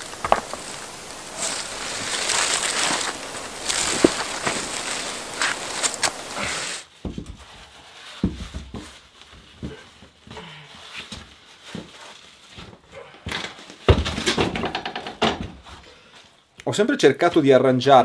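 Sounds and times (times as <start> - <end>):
heavy stone thumping and scraping: 0.0 - 4.6
dry leaves and soil crunching: 0.0 - 7.0.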